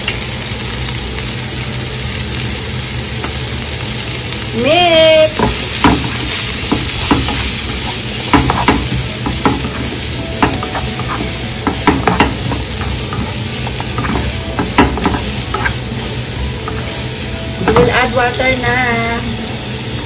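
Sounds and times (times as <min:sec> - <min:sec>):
vegetables sizzling in oil: 0:00.0 - 0:20.0
spatula scraping and tapping pan: 0:05.4 - 0:17.0.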